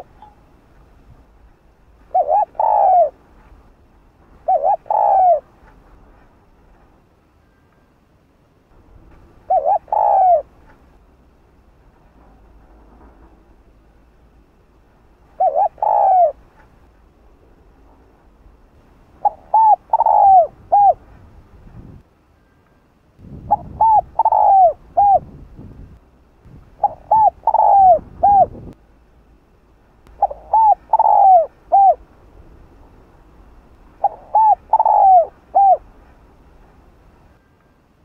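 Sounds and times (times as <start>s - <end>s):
dove cooing: 0.0s - 0.2s, 2.0s - 3.2s, 4.4s - 5.5s, 9.4s - 10.8s, 15.3s - 16.5s, 19.2s - 21.1s, 23.5s - 25.4s, 26.8s - 28.7s, 30.1s - 32.0s, 34.0s - 36.0s.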